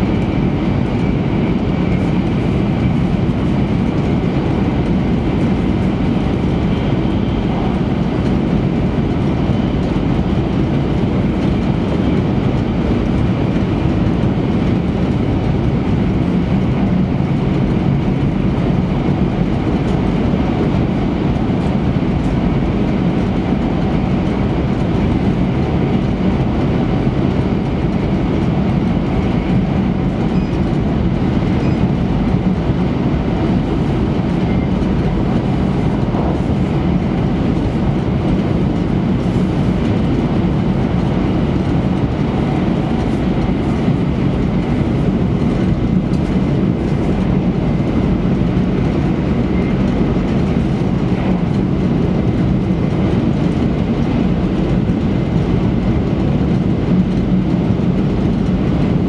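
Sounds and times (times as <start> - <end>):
train wheels rumbling on track: 0.0 - 59.0.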